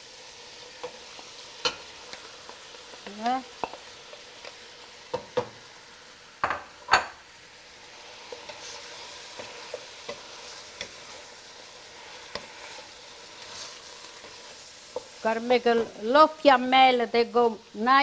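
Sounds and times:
meat sizzling in a pot: 0.0 - 18.0
wooden spatula stirring: 7.9 - 16.0.

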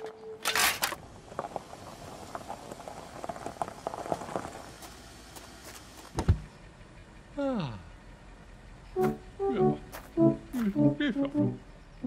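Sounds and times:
footsteps crunching on gravel: 3.7 - 6.2, 9.8 - 10.8.

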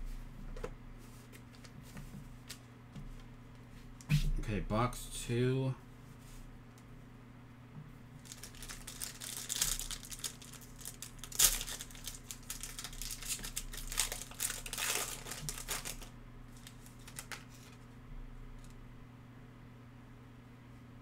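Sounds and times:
foil pack tearing: 8.2 - 17.8
foil wrapper crinkling: 8.2 - 17.9.

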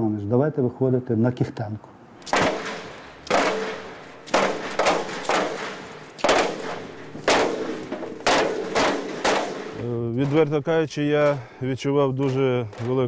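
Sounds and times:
loud sharp percussive hits: 2.2 - 10.6.

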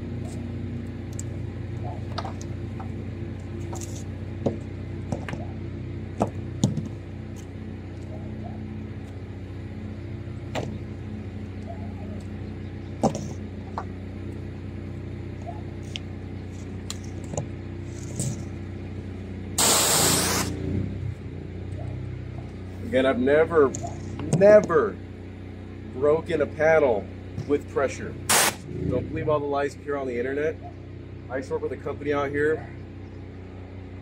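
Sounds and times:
pressure washer running: 19.6 - 20.5, 28.3 - 28.6
loud hiss: 19.6 - 20.6, 28.3 - 28.6.

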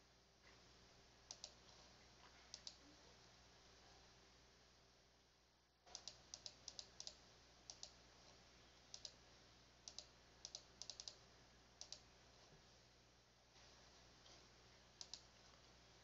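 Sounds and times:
computer mouse clicks: 1.3 - 1.6, 2.5 - 2.8, 5.9 - 8.0, 8.9 - 9.2, 9.8 - 11.2, 11.8 - 12.1, 15.0 - 15.3.

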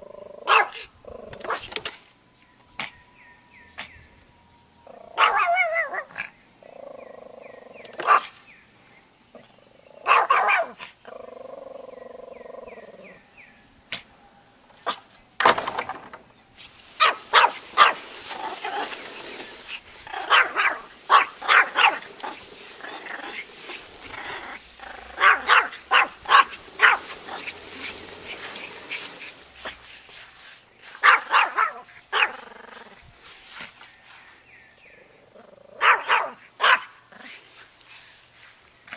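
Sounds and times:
small dog barking: 0.4 - 1.7, 5.1 - 6.3, 8.0 - 8.4, 10.0 - 10.9, 17.0 - 19.0, 20.1 - 29.8, 31.0 - 32.5, 35.8 - 37.0.

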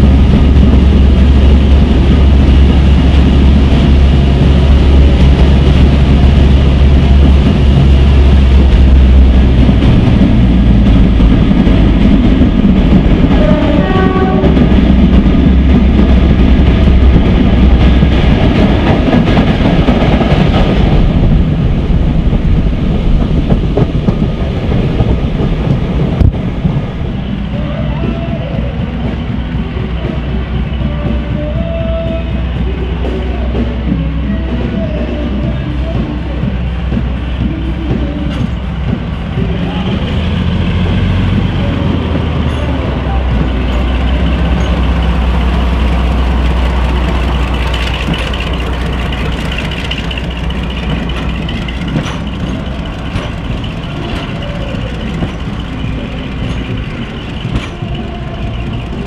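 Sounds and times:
locomotive diesel engines droning: 0.0 - 59.0
locomotive horn: 13.3 - 14.7.

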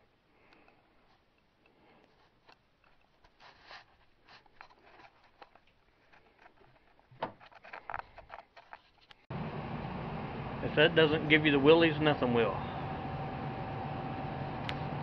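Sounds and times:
light handling clicks and rustles: 0.5 - 9.2.

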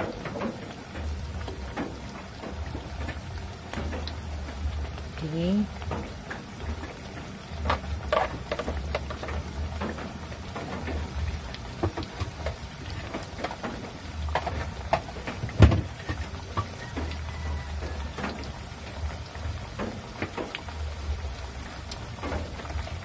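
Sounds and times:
food sizzling in oil: 0.0 - 23.0.

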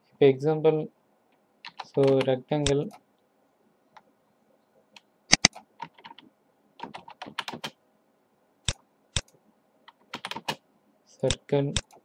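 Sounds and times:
computer keyboard keystrokes: 6.8 - 7.7, 9.9 - 10.6.

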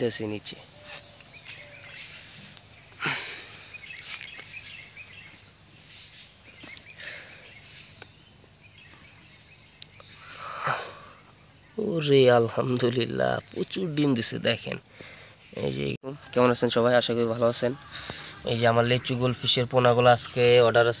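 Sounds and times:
high-pitched insect drone: 13.1 - 21.0.

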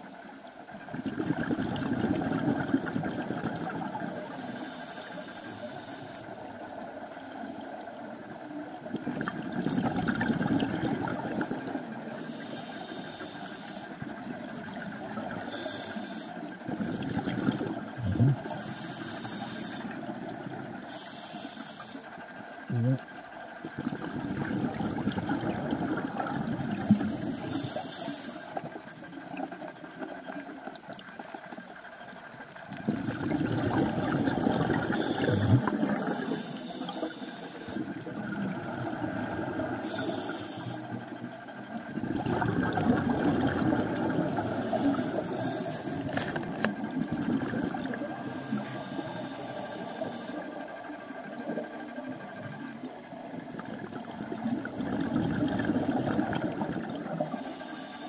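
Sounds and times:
exhaled air bubbling underwater: 0.0 - 58.0
regulator air hissing: 39.8 - 40.9.

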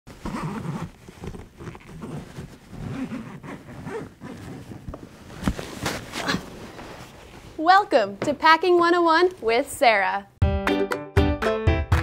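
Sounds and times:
fabric rustling and shuffling: 0.1 - 8.5.

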